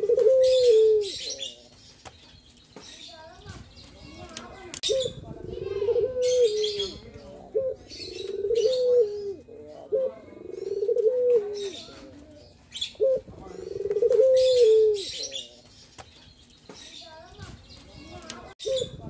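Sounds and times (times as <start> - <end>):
dove cooing: 0.0 - 1.6, 4.8 - 15.5
small birds chirping: 0.0 - 19.0.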